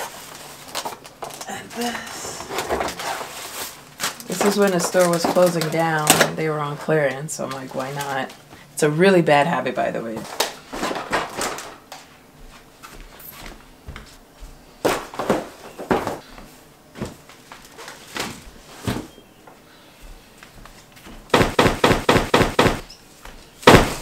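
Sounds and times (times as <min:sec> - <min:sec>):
items knocking on floor: 0:10.2 - 0:12.1, 0:14.8 - 0:16.3, 0:21.0 - 0:22.9, 0:23.6 - 0:24.0.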